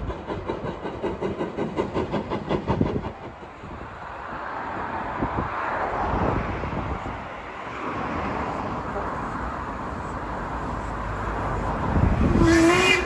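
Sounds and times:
steam locomotive exhaust beats: 0.0s - 4.8s, 9.8s - 13.0s
steady rushing noise: 0.0s - 12.4s.

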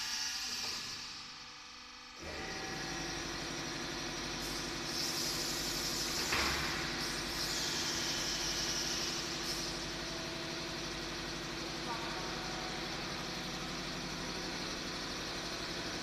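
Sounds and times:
burst of released air: 4.4s - 6.3s, 6.9s - 9.8s
air hissing: 4.4s - 9.8s
motor hum: 5.5s - 16.0s.

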